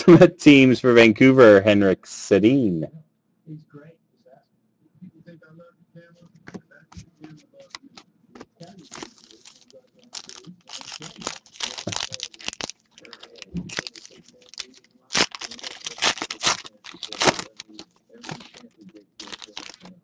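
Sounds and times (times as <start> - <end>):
foil wrappers crinkling and tearing: 8.6 - 19.9.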